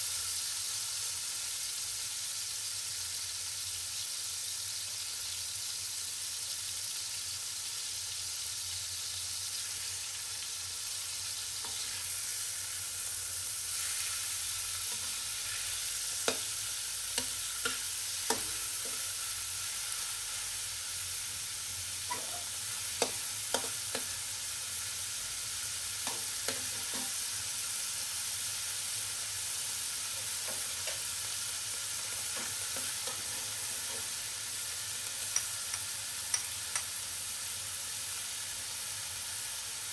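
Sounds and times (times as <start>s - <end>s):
meat sizzling in oil: 0.0s - 39.9s
metal spatula scraping wok: 22.1s - 24.1s.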